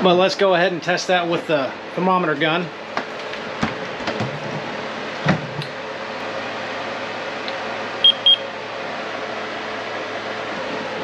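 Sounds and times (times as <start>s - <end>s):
steady background hum: 0.0s - 11.0s
thermometer high beeps: 8.0s - 8.4s.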